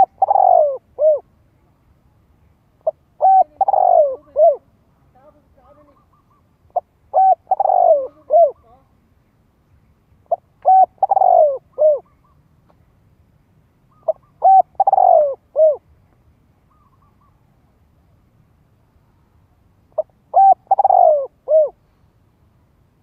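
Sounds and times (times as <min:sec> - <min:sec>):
dove cooing: 0:00.0 - 0:01.3, 0:02.8 - 0:04.7, 0:05.8 - 0:08.8, 0:10.2 - 0:12.4, 0:13.9 - 0:15.8, 0:19.9 - 0:21.8.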